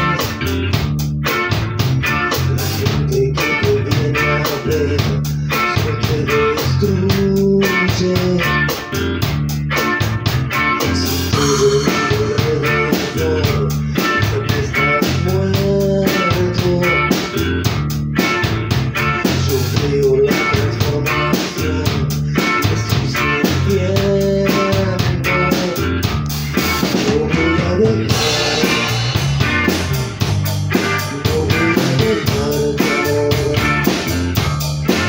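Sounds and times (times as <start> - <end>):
rock band playing live: 0.0 - 35.0
cymbals keeping beat: 28.1 - 33.0.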